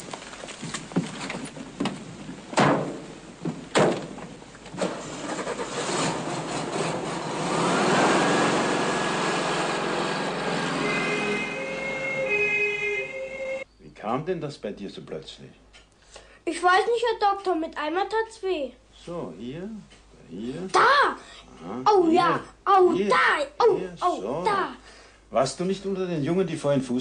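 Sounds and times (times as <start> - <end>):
sharp knocks: 2.6 - 4.3
vehicle engine starting and running: 4.7 - 11.6.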